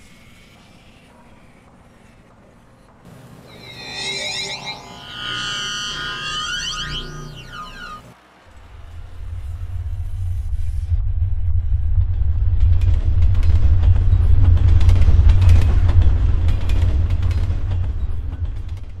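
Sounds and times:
crackling: 0:03.1 - 0:08.2.

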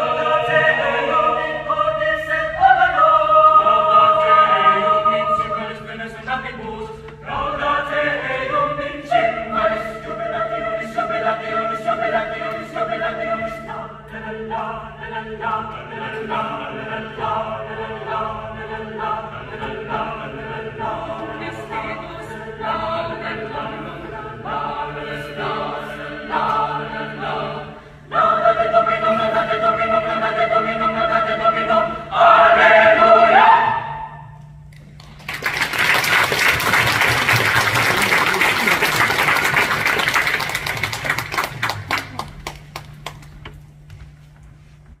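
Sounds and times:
choir singing a cappella: 0:00.0 - 0:34.4
audience applause: 0:35.0 - 0:43.3.

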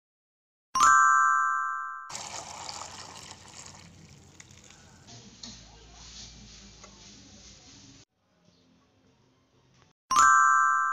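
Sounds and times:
liquid pouring into metal tin: 0:02.1 - 0:05.1.

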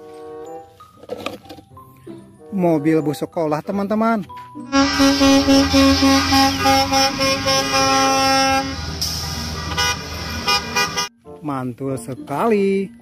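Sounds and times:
bus horn short beeps: 0:04.7 - 0:08.8
bus engine rumble: 0:04.8 - 0:11.1.

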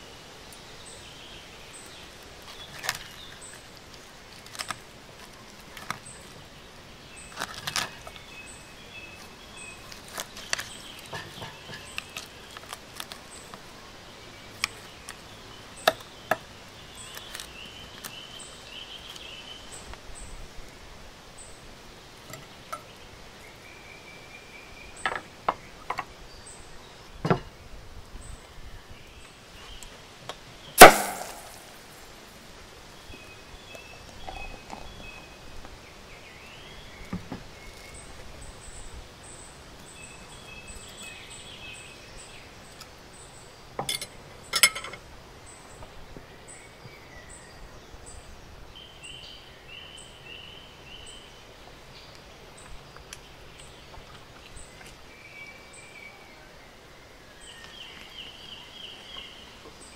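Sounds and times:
birds chirping softly: 0:00.0 - 0:59.9
cutlery clinking on ceramic plate: 0:43.8 - 0:45.0.

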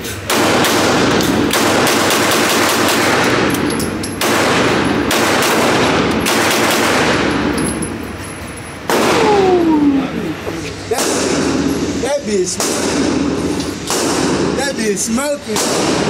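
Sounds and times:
rapid gunfire: 0:00.3 - 0:07.5, 0:12.6 - 0:14.7, 0:15.6 - 0:16.0.

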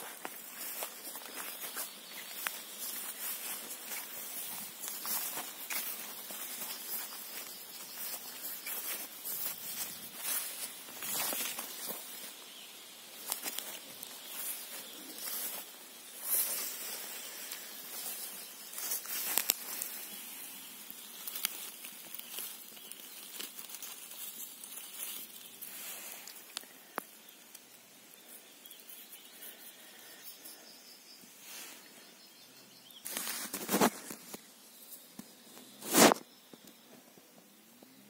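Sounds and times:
footsteps through tall grass: 0:00.0 - 0:26.5, 0:33.0 - 0:34.5.

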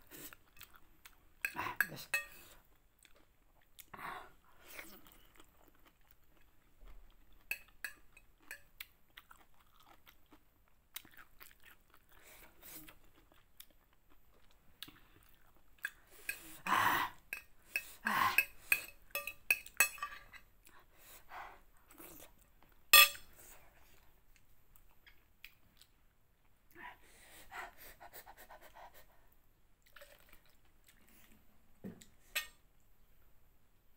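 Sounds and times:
chewing and crunching: 0:00.2 - 0:01.6, 0:04.7 - 0:16.4.

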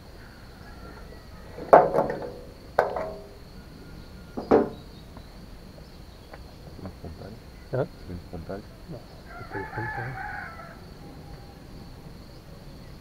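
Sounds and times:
high insect trill: 0:00.0 - 0:13.0
metal tools clanking: 0:01.8 - 0:03.4.

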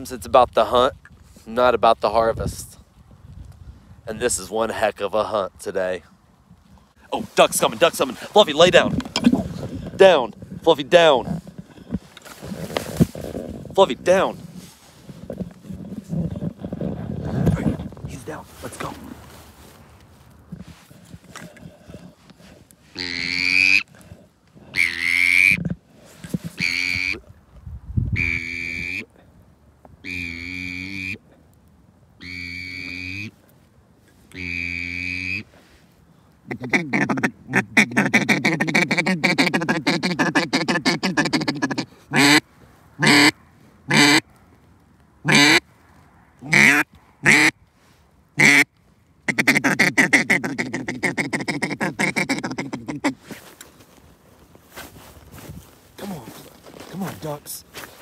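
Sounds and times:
duck call quacks: 0:23.0 - 0:23.9, 0:24.7 - 0:25.6, 0:26.6 - 0:27.2, 0:28.2 - 0:29.1, 0:30.0 - 0:31.2, 0:32.2 - 0:33.3, 0:34.3 - 0:35.5, 0:36.5 - 0:42.4, 0:43.0 - 0:44.2, 0:45.2 - 0:45.6, 0:46.4 - 0:47.6, 0:48.4 - 0:48.7, 0:49.3 - 0:53.2.

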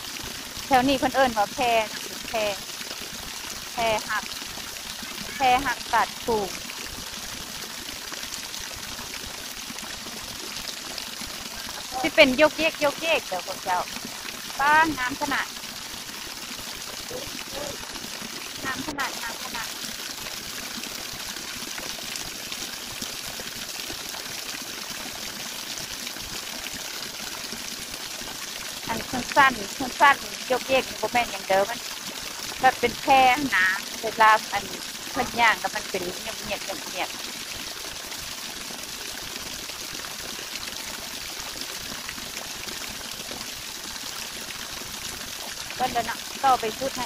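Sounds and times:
waterfall rushing: 0:17.0 - 0:18.0, 0:18.6 - 0:19.7.

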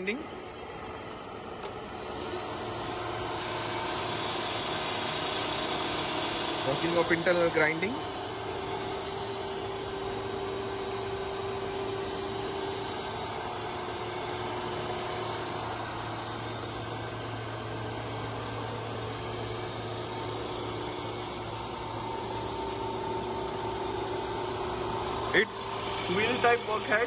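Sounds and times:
grinder motor humming and whining: 0:00.0 - 0:27.0.

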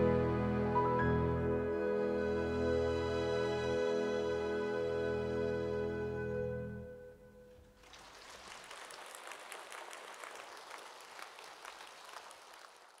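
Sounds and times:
orchestra chord: 0:00.0 - 0:07.5
audience applauding: 0:07.8 - 0:13.0.

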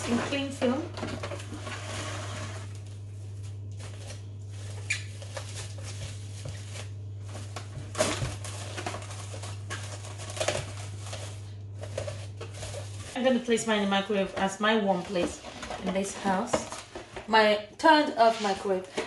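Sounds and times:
steady low hum: 0:00.0 - 0:19.0
cling film crinkling: 0:02.8 - 0:13.2.

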